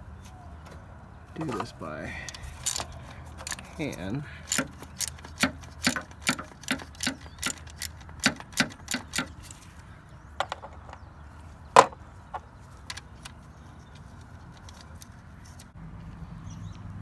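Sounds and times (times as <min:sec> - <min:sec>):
socket ratchet clicking: 0:02.6 - 0:03.7, 0:04.5 - 0:09.5.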